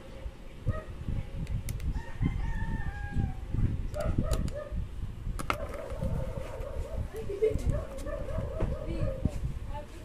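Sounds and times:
rooster crowing: 1.9 - 3.5.

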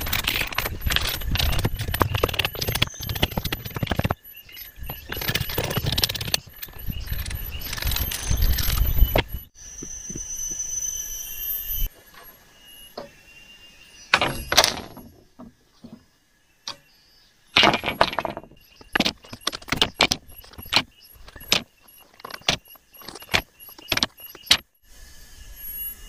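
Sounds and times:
bamboo slats scraping: 14.2 - 16.1, 17.6 - 24.6.

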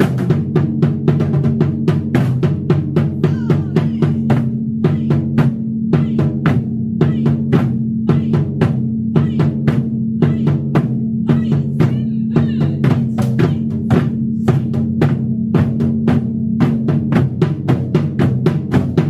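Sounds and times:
taiko drums playing: 0.0 - 19.0.

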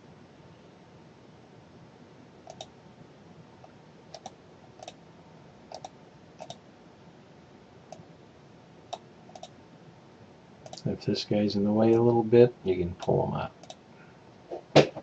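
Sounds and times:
faint steady hiss: 0.0 - 14.6
mouse buttons clicking: 2.5 - 2.7, 4.1 - 5.0, 5.7 - 6.6, 8.9 - 9.5.

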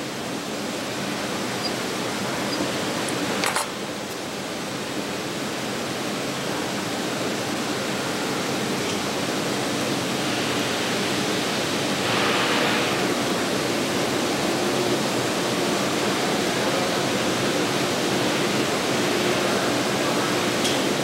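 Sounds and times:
steady hiss: 9.5 - 20.4.

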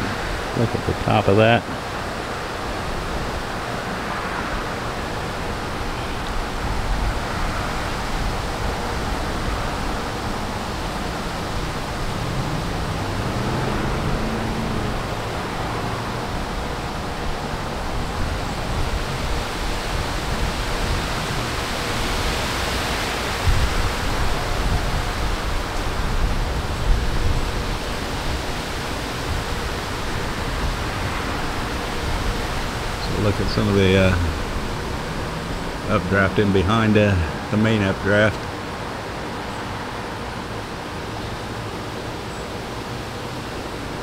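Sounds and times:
gusty wind on microphone: 1.6 - 36.5.

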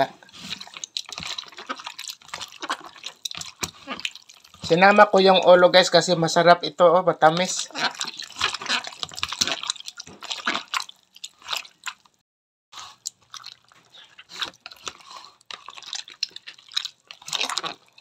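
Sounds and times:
hands squelching raw fish: 0.0 - 6.1, 7.2 - 12.2, 12.8 - 18.0.

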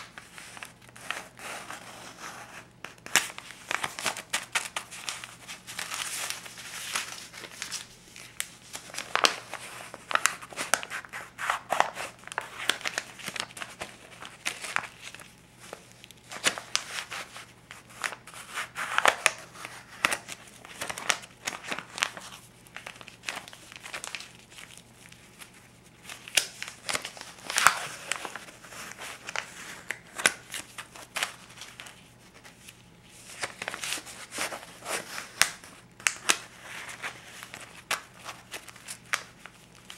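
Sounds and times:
paper bills rustling and snapping: 0.0 - 39.9.

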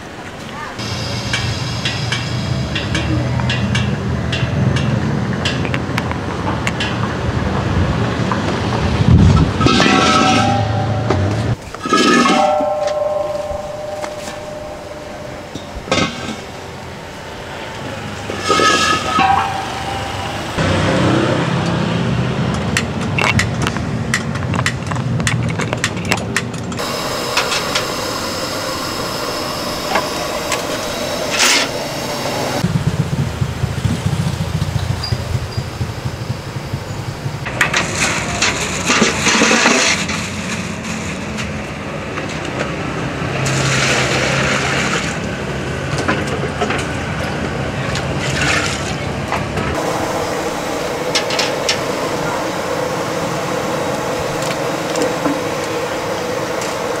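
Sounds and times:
street traffic noise: 0.0 - 57.0
metal pots and utensils knocking: 9.6 - 16.4, 18.5 - 20.6.

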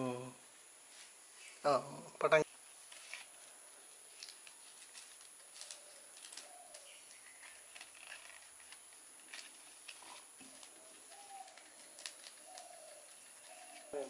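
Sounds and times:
dry bark crackling: 2.7 - 14.0
dove cooing: 10.1 - 14.0.

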